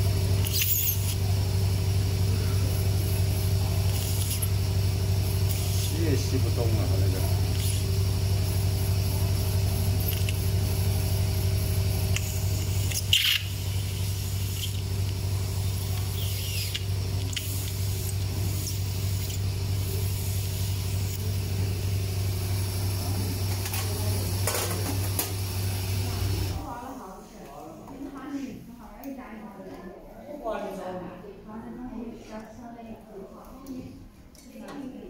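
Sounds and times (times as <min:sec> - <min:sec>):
steady low hum: 0:00.0 - 0:27.5
brief squeak: 0:00.4 - 0:01.1.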